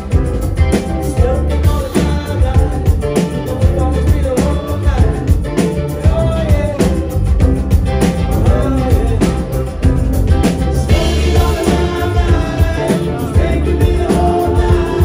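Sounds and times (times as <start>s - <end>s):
bass: 0.0s - 15.0s
electric organ keyboard: 0.0s - 15.0s
steady drum beat: 0.0s - 15.0s
person singing: 1.1s - 7.1s, 8.4s - 9.7s, 10.9s - 15.0s.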